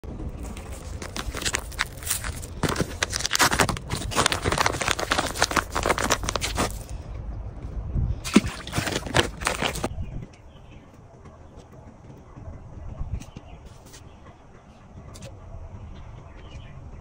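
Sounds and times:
plastic packet crinkling: 0.3 - 6.9, 8.3 - 9.9.

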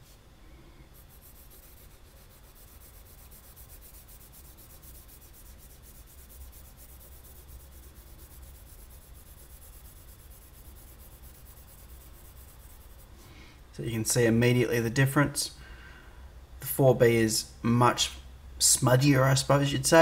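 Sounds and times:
pencil scratching on paper: 0.9 - 13.1.

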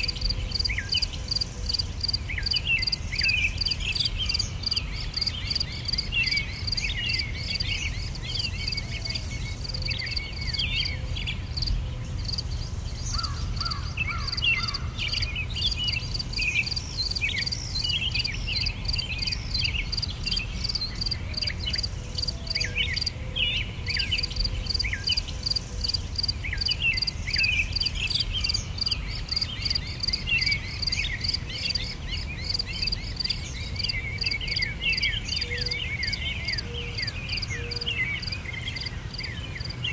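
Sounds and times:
insect chirping: 0.0 - 23.2, 23.8 - 39.8
small birds twittering: 0.0 - 39.9.

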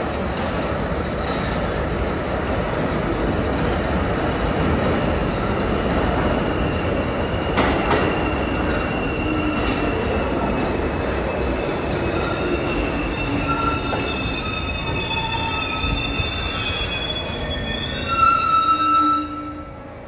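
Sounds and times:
subway train rumble: 0.0 - 20.0
wheel squeal: 6.4 - 10.5, 11.4 - 19.7.

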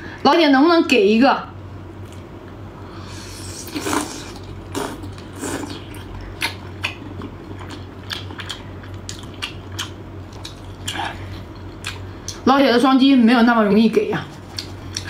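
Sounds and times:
person chewing crunchy food: 3.2 - 12.4, 14.4 - 15.0.

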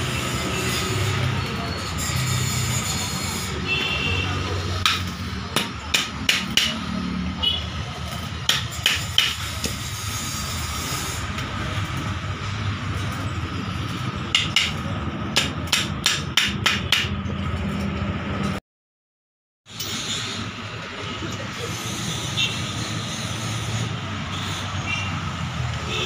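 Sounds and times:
workshop hum: 0.0 - 18.6, 19.7 - 26.0
hammer strikes on metal: 4.8 - 7.0, 8.4 - 9.8, 14.3 - 17.2.

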